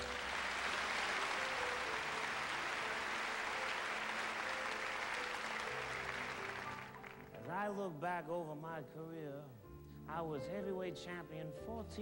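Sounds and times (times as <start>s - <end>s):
audience applauding: 0.0s - 7.5s
faint music: 0.0s - 12.0s.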